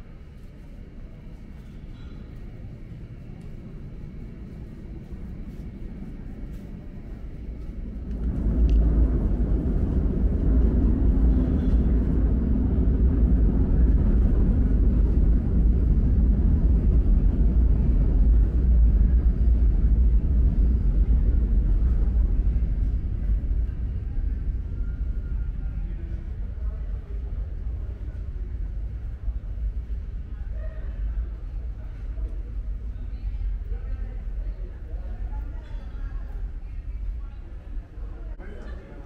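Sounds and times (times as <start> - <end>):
subway train rumbling: 0.0 - 39.0.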